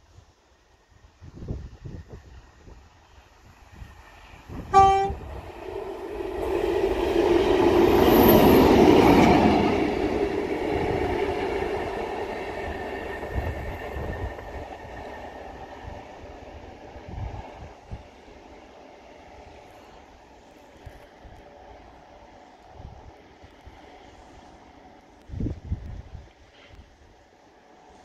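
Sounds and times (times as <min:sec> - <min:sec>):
diesel locomotive passing: 0:00.8 - 0:28.0
locomotive horn blast: 0:04.7 - 0:05.2.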